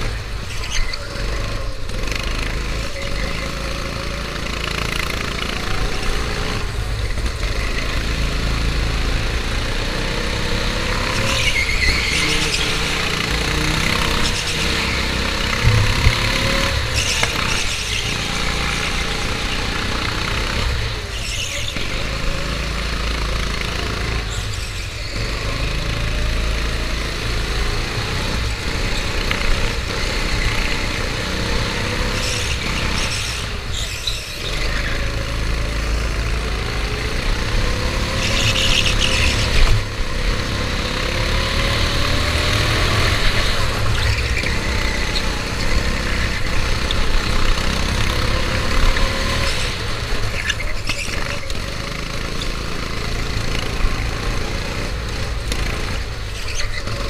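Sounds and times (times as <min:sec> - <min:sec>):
go-kart engine revving: 0:00.0 - 0:57.0
low rumble: 0:15.6 - 0:17.0.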